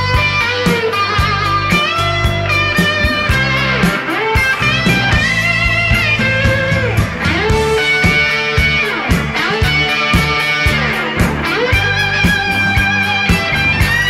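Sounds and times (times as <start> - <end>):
electric guitar bending notes: 0.0 - 14.0
steady drum beat: 0.0 - 14.0.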